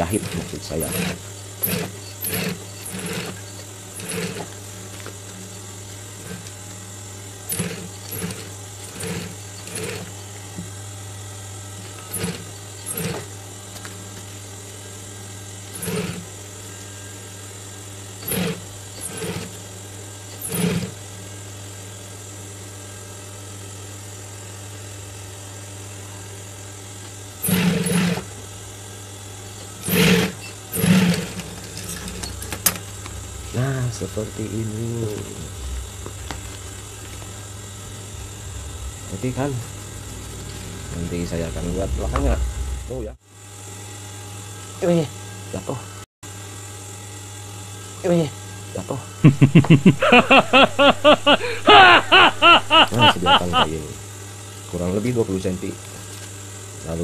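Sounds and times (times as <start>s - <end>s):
sewing machine stitching: 0.0s - 4.6s, 7.4s - 10.2s, 11.9s - 13.3s, 15.7s - 16.3s, 18.2s - 19.6s, 20.3s - 21.0s, 27.4s - 28.3s, 29.8s - 33.7s
steady low hum: 0.0s - 45.3s, 49.2s - 54.3s.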